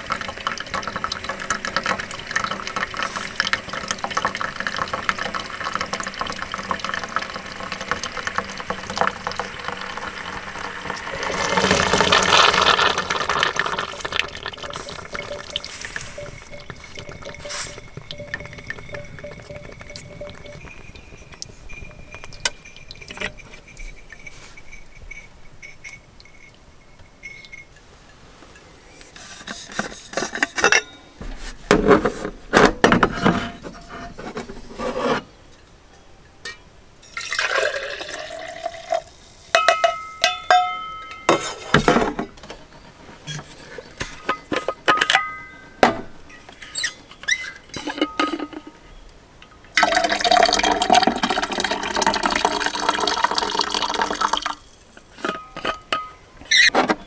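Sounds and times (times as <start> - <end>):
liquid pouring into steel cups: 0.0 - 27.8, 37.0 - 41.7, 49.7 - 56.2
steel cups clinking: 0.0 - 28.7, 29.4 - 31.1, 35.6 - 41.8, 43.3 - 48.8, 49.5 - 56.7.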